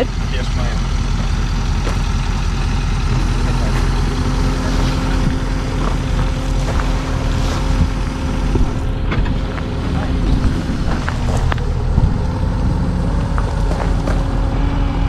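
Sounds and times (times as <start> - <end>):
steady hum: 0.0 - 15.0
truck engine idling: 0.0 - 15.0.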